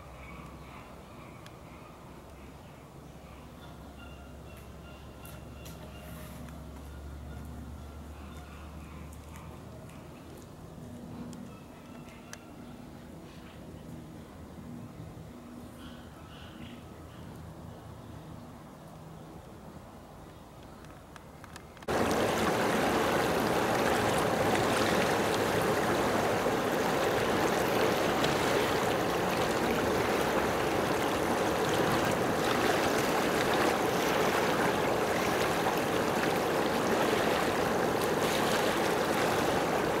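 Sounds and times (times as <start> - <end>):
running water rushing: 21.9 - 40.0.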